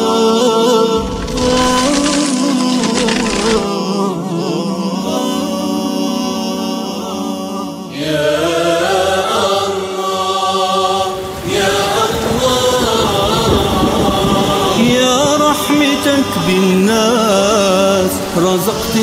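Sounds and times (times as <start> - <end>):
choir chanting a held melody: 3.7 - 16.6.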